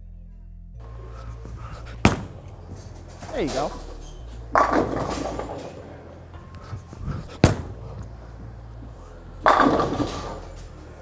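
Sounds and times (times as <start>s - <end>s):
low machinery hum: 0.0s - 11.0s
bowling pins clattering: 0.8s - 11.0s
sharp bang: 1.4s - 3.9s.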